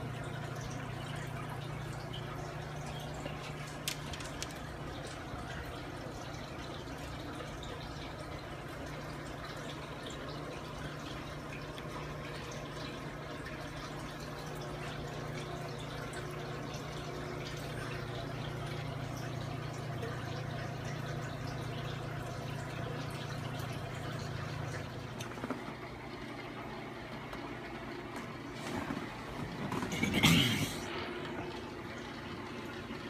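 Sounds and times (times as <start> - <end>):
aquarium equipment hum: 0.0 - 33.0
water trickling and bubbling: 0.0 - 33.0
water drips and pops: 2.1 - 5.6.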